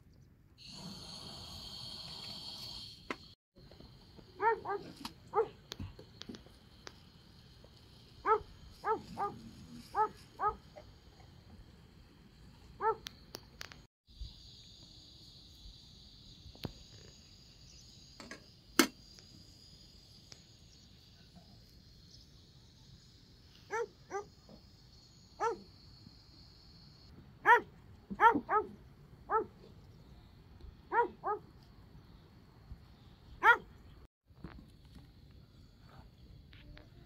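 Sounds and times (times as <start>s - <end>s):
dog barking: 4.4s - 5.6s, 8.2s - 10.6s, 12.8s - 13.1s, 23.7s - 24.3s, 25.4s - 25.7s, 27.4s - 29.6s, 30.9s - 31.4s, 33.4s - 33.7s
steady high hiss: 5.0s - 27.1s.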